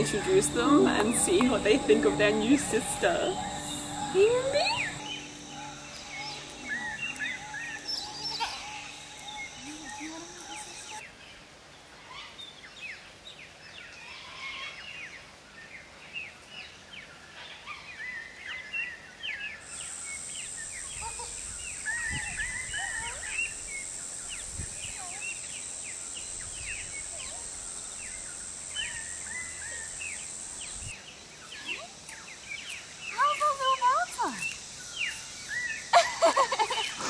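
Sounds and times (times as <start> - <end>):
steady high-pitched drone: 0.0 - 11.0
birds chirping: 0.0 - 11.1, 18.4 - 37.0.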